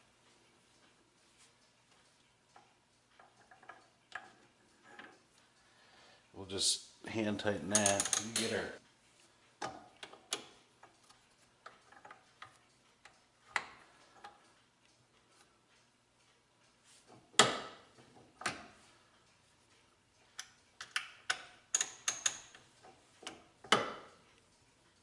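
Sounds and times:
metal tool parts clicking and knocking: 7.7 - 8.6, 20.4 - 24.1.

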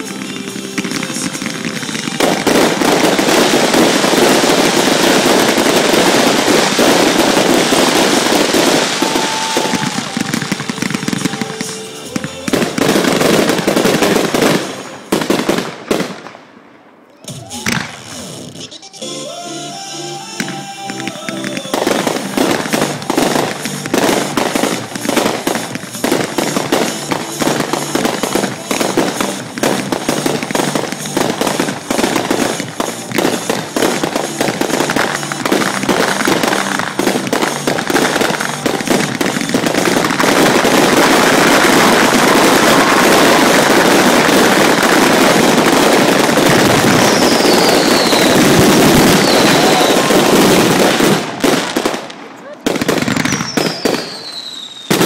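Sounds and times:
fireworks bangs and crackling: 0.0 - 18.8, 19.4 - 55.0
falling firework whistles: 1.9 - 13.8, 31.9 - 51.5, 53.0 - 55.0.

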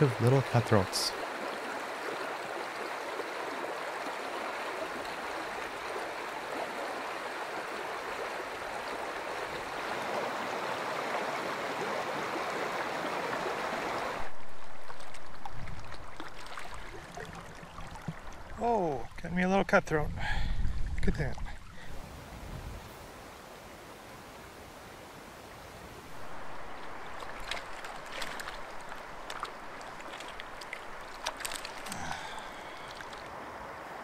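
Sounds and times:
river water rushing: 0.0 - 19.0, 21.6 - 34.0.

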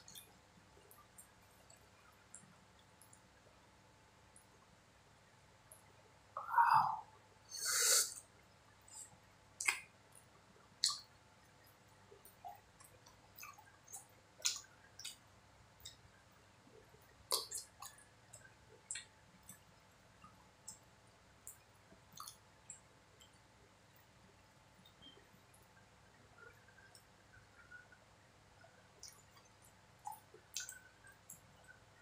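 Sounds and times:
short hoot-like hum: 6.4 - 7.1
hissing breath: 6.5 - 8.2
mouth clicks and chewing smacks: 9.6 - 10.2, 10.8 - 15.2, 15.8 - 16.1, 17.0 - 23.4, 28.6 - 31.8.

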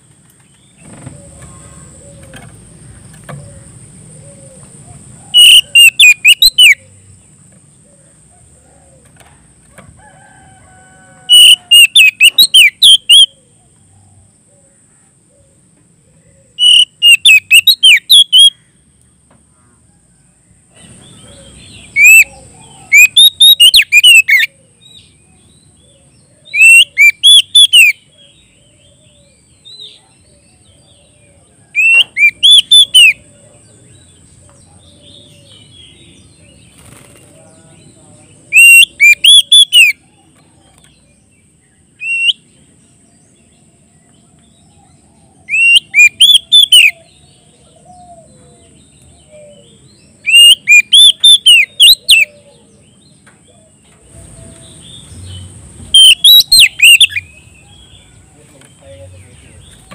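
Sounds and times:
bird singing whistled notes: 5.3 - 7.0, 11.3 - 13.4, 16.6 - 18.6, 20.8 - 31.2, 31.8 - 33.3, 37.7 - 42.6, 44.1 - 47.5, 48.6 - 53.2, 54.4 - 59.9.

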